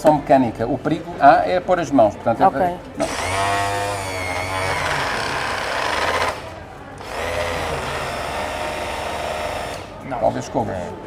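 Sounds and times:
electric sander motor running: 3.0s - 10.0s.

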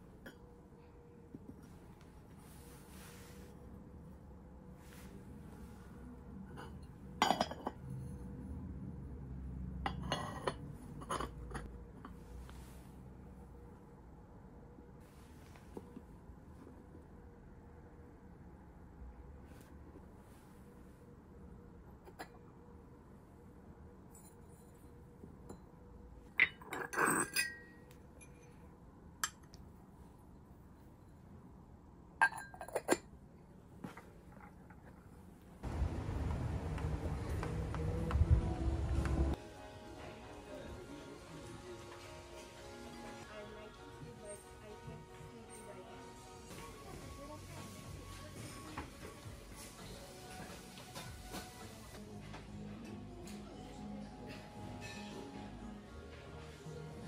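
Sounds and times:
ceramic scraping: 4.9s - 8.3s, 9.8s - 12.5s, 26.3s - 28.6s, 32.2s - 33.1s
porcelain lid clinking: 6.6s - 7.9s, 9.9s - 11.7s, 26.4s - 28.5s, 32.2s - 33.1s.

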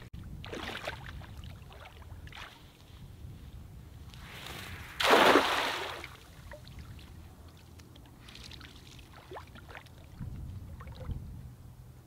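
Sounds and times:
net splashing onto water: 4.2s - 7.0s.

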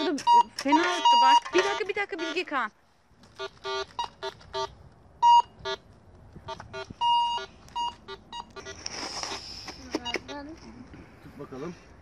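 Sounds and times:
metal detector short beeps: 0.0s - 1.8s, 3.4s - 5.8s, 6.5s - 8.8s.

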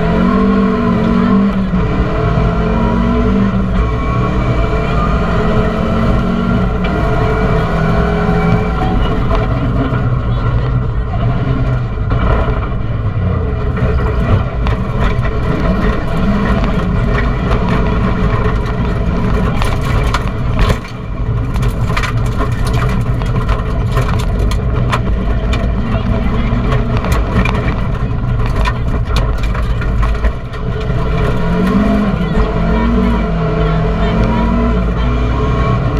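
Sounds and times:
rally car engine revving: 0.0s - 35.9s.

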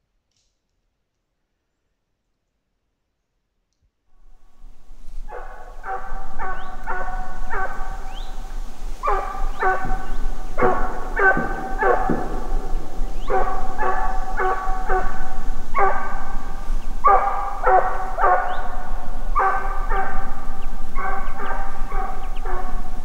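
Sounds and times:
dog barking: 5.1s - 23.0s.

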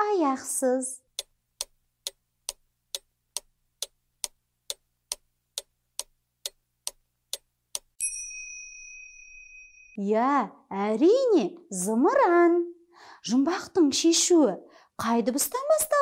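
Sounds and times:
clock ticking: 1.1s - 8.0s
bright chime: 8.0s - 10.0s.

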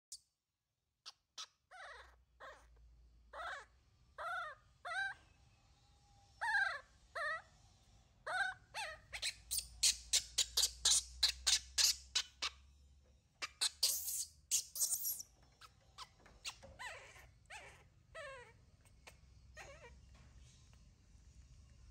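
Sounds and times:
infant monkey whimpering cries: 1.4s - 5.2s, 6.4s - 7.5s, 8.2s - 12.5s, 13.4s - 20.0s
monkey high squeals: 13.4s - 18.5s, 19.6s - 19.9s.

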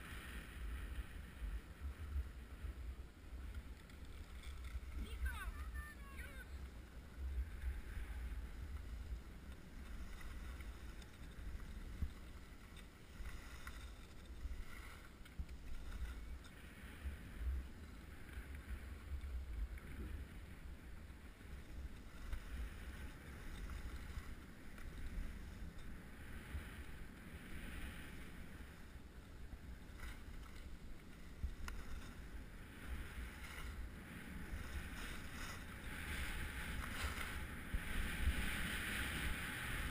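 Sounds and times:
skis scraping over snow: 0.0s - 19.5s, 20.1s - 39.9s
wind buffeting microphone: 31.2s - 39.9s.

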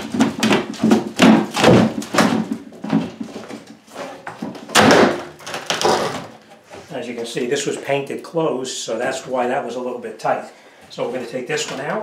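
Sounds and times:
wooden cabinet knocking and scraping: 0.0s - 6.5s.

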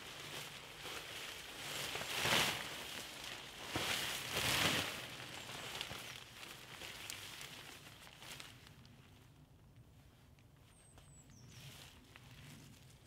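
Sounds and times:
tarp rustling and swishing: 0.0s - 8.7s.

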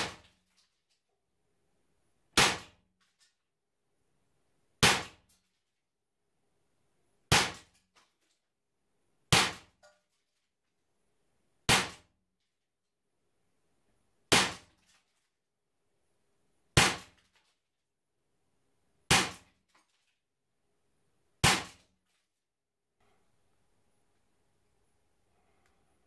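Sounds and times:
air pistol shots cracking: 2.4s - 2.8s, 19.1s - 19.5s, 21.4s - 21.8s.

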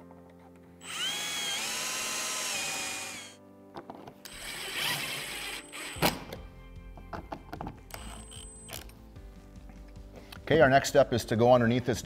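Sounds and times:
cordless drill spinning: 0.8s - 3.4s, 4.3s - 6.1s, 7.9s - 8.8s.

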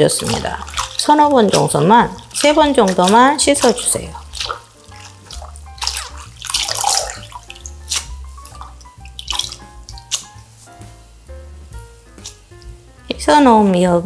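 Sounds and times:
hands splashing in bowl of water: 0.0s - 10.5s
soft background music: 0.0s - 14.0s.

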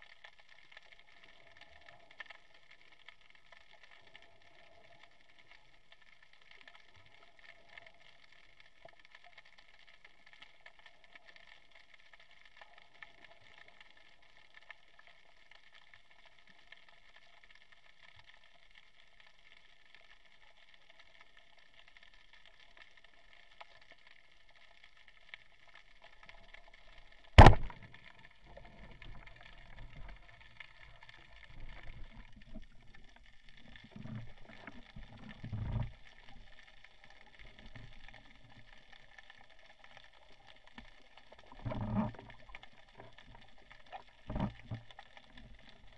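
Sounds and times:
low rumbles of water movement: 0.0s - 45.9s
speargun firing underwater: 27.4s - 27.9s.

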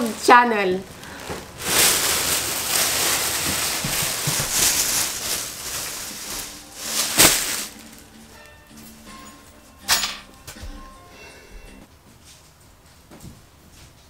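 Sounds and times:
sharp plastic crackle: 0.0s - 8.5s
plastic bags rustling: 0.0s - 9.3s.

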